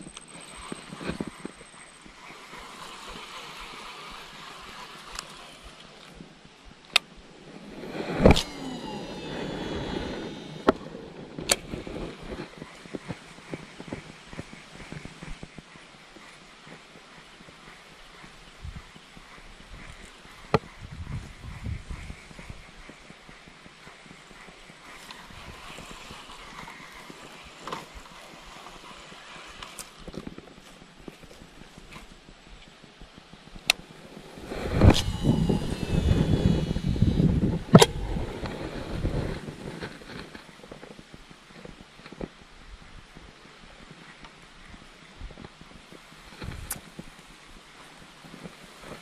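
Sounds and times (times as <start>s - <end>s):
fishing reel spool whining: 0.0s - 6.6s, 7.4s - 31.4s, 33.9s - 39.7s
fishing reel clicks: 0.1s - 6.1s
fishing reel clicking: 0.1s - 6.2s, 23.8s - 30.2s.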